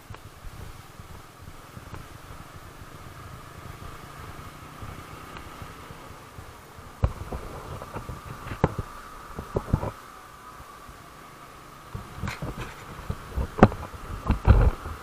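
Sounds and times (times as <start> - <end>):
motorcycle engine rumbling: 0.0 - 15.0
sharp knocks and thumps: 7.0 - 9.9.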